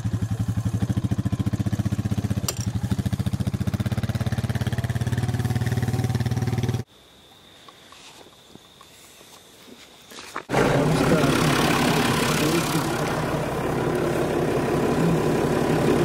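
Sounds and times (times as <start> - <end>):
engine idling: 10.5 - 16.0.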